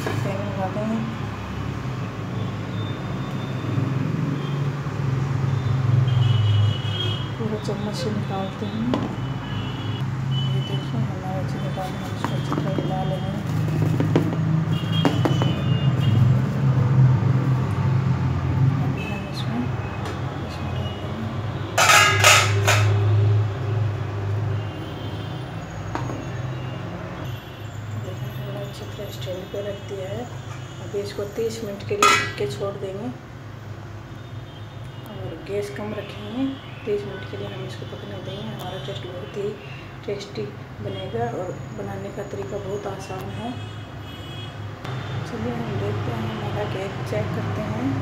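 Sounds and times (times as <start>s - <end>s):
metal stand clanking in pot: 21.8s - 23.0s, 32.0s - 32.4s.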